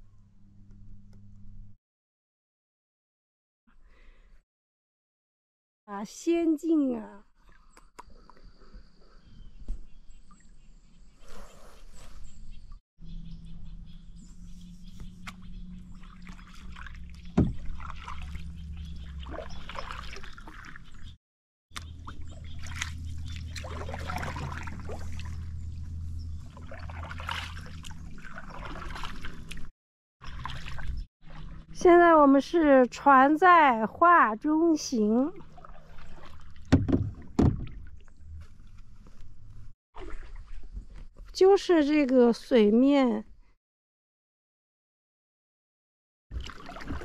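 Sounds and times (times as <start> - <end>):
canoe paddle strokes in water: 14.3 - 21.1, 21.8 - 31.7, 35.3 - 41.2, 46.3 - 47.0
low steady hum: 21.8 - 28.8.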